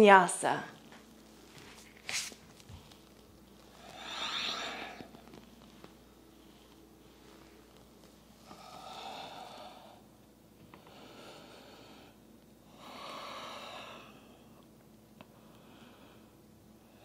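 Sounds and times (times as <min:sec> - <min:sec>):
person breathing slowly: 0:03.7 - 0:05.4, 0:08.4 - 0:14.6, 0:15.3 - 0:17.0.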